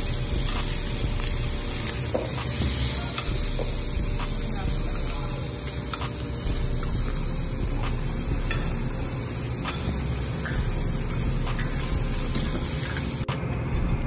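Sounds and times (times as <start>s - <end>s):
meat sizzling on a grill plate: 0.0s - 13.3s
spoons clinking on metal bowls: 1.8s - 4.0s, 8.4s - 13.1s.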